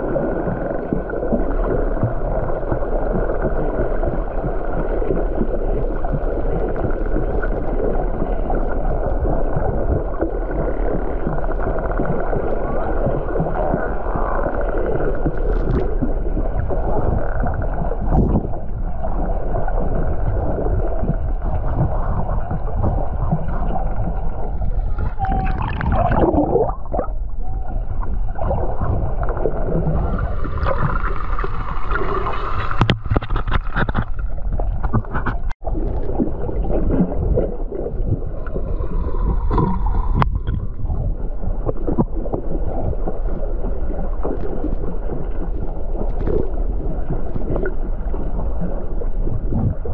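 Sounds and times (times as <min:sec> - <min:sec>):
underwater rushing gurgling water: 0:00.0 - 0:49.9
faint whistle-like tones: 0:25.0 - 0:26.1.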